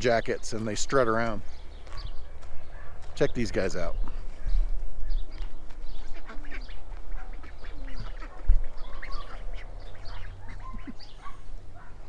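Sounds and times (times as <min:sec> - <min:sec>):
poultry calling: 0:04.4 - 0:12.0
wind rumble on microphone: 0:06.7 - 0:09.6.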